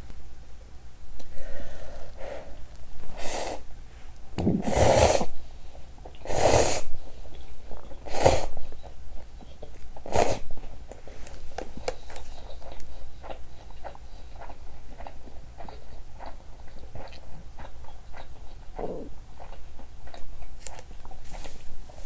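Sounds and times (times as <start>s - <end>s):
person slurping noodle broth: 4.5s - 5.3s.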